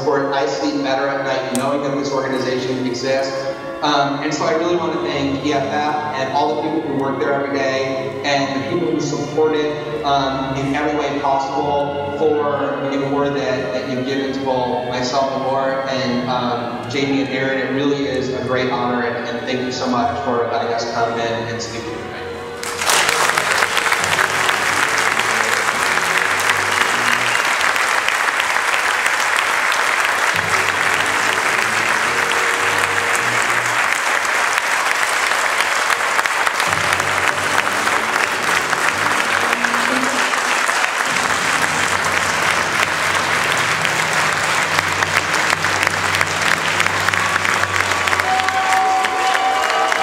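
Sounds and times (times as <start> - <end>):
film-score music: 0.0 - 50.0
audience applause: 22.6 - 50.0.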